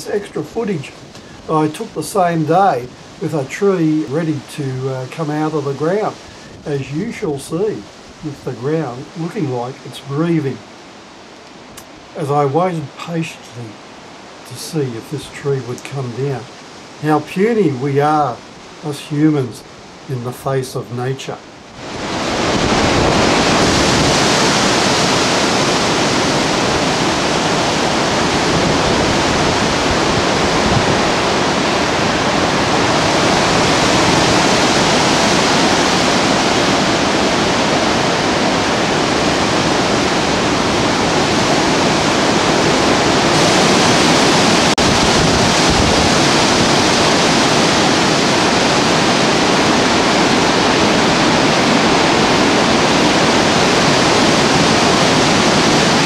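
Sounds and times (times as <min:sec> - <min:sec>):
storm wind rushing through trees: 0:00.0 - 0:56.0.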